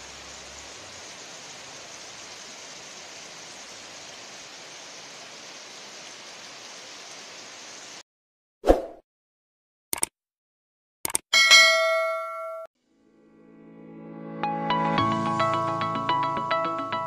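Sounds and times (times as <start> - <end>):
heavy rain on foliage: 0.0 - 8.0.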